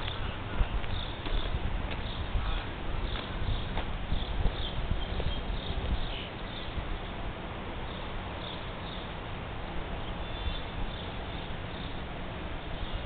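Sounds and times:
outdoor rumble and hiss: 0.0 - 13.0.

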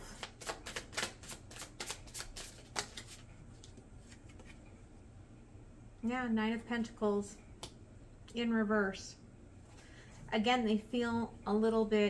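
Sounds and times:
cards being shuffled: 0.0 - 4.6.

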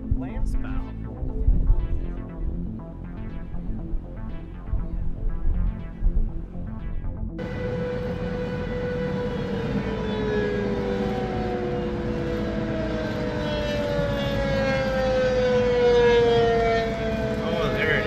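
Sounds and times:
warning siren wailing: 7.3 - 18.0
car road noise: 7.4 - 18.0.

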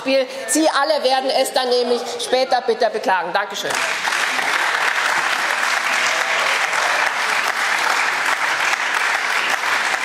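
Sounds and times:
crowd applauding: 3.7 - 10.0.

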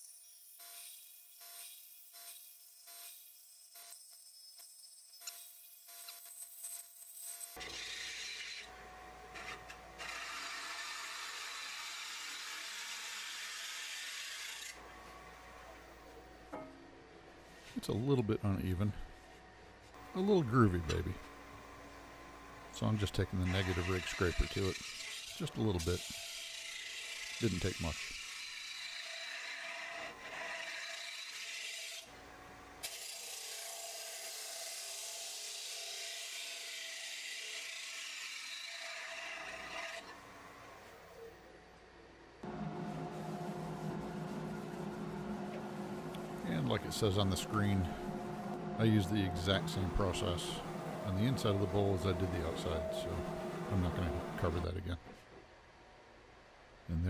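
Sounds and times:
gouge cutting wood on a lathe: 7.6 - 8.7, 9.3 - 14.8, 23.0 - 32.1, 32.8 - 40.2, 43.2 - 54.6.

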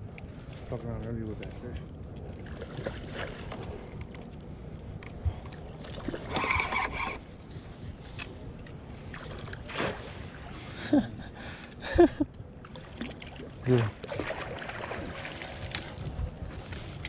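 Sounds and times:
water sloshing around a boat: 0.0 - 17.0
fishing reel whirring: 6.3 - 7.3.

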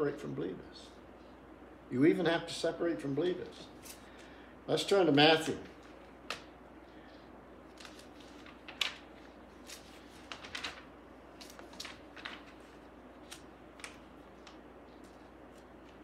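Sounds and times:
book pages turning: 7.7 - 16.0.

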